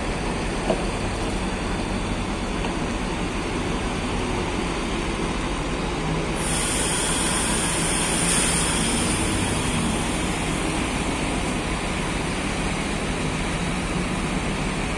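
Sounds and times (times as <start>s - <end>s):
diesel bus engine pulling away: 0.0s - 14.9s
high hiss: 6.4s - 11.1s.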